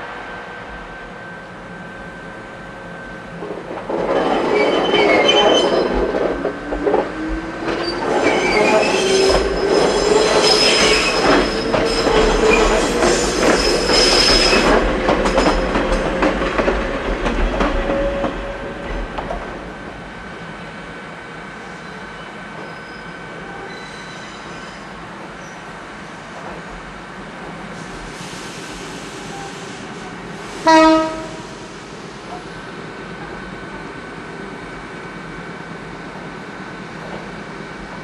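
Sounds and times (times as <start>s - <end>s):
train wheels squealing: 4.0s - 6.2s, 7.7s - 16.3s, 21.6s - 25.7s, 28.2s - 29.8s.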